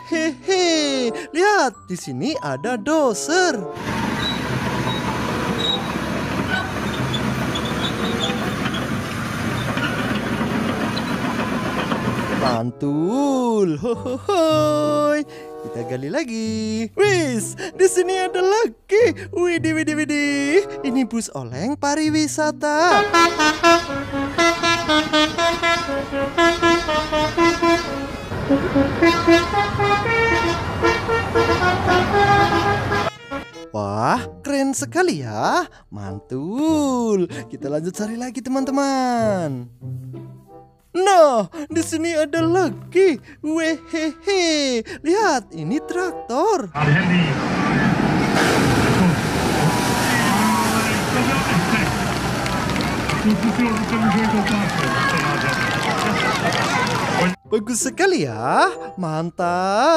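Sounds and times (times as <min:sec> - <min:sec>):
heavy diesel machinery rumbling: 0:03.8 - 0:12.6, 0:23.0 - 0:33.5, 0:46.9 - 0:57.3
multi-tone air horn tune: 0:22.9 - 0:33.8.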